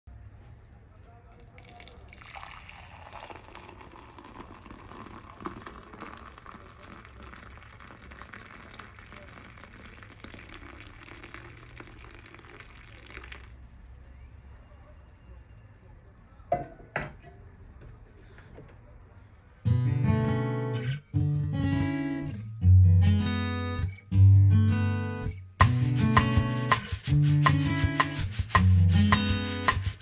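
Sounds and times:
drink pouring into mug: 1.4s - 14.4s.

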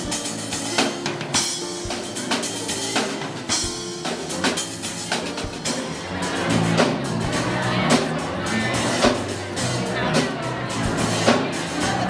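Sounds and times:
drum kit beat: 0.0s - 12.0s
electric bass: 3.5s - 12.0s.

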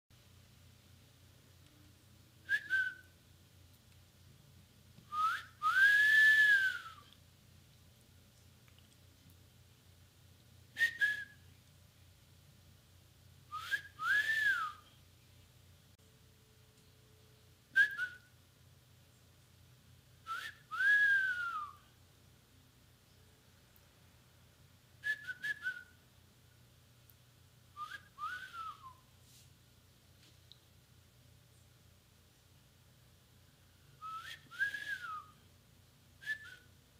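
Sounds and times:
person wolf-whistling: 2.4s - 3.1s, 5.1s - 7.1s, 10.8s - 11.4s, 13.5s - 14.9s, 17.8s - 18.3s, 20.3s - 21.8s, 25.0s - 26.0s, 27.8s - 29.1s, 34.0s - 35.4s, 36.2s - 36.7s.

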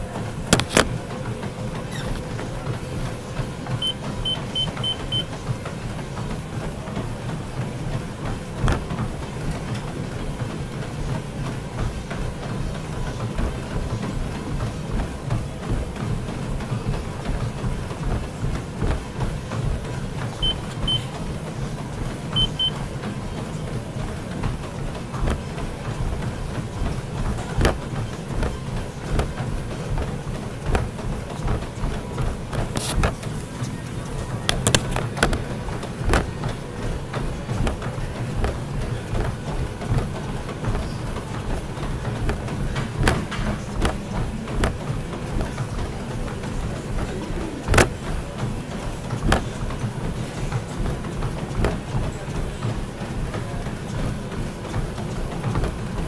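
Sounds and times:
exercise machine rumble: 0.0s - 56.0s
exercise machine knocks: 27.6s - 29.4s, 34.5s - 36.5s, 41.9s - 44.8s, 47.5s - 48.0s, 49.2s - 49.6s
faint thumps: 34.4s - 48.3s.

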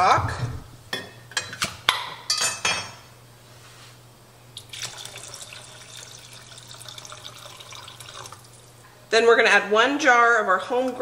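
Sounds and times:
liquid pouring and splashing: 4.6s - 8.8s.

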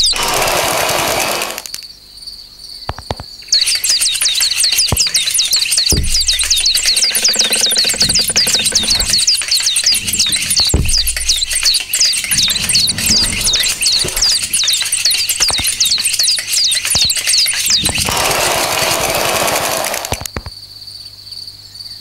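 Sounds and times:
high cricket-like chirps: 0.0s - 22.0s
dull thuds: 4.8s - 18.6s.

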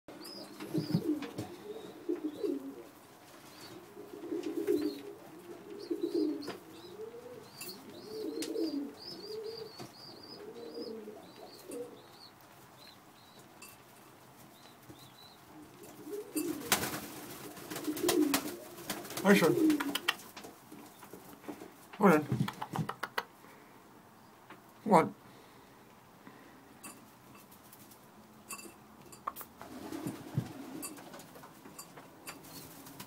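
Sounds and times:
pigeons cooing: 0.1s - 13.4s, 14.7s - 23.4s, 29.4s - 31.6s
bird flapping wings: 16.4s - 21.7s, 22.3s - 23.2s, 27.5s - 28.1s, 29.5s - 31.6s, 32.4s - 33.0s.

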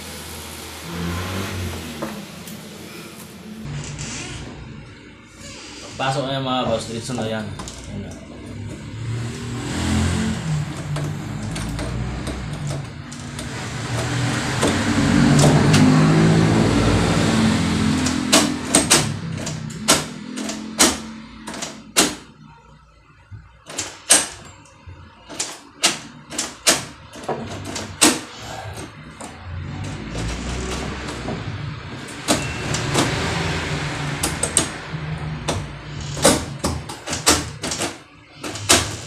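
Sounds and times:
passing vehicle engine rumbling: 0.0s - 3.7s, 6.8s - 21.5s, 28.4s - 36.7s.

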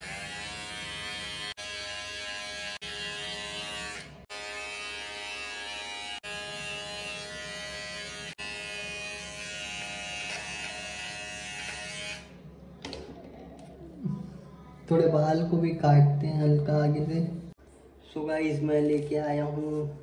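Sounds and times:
electric hair trimmer buzzing: 0.0s - 12.4s.

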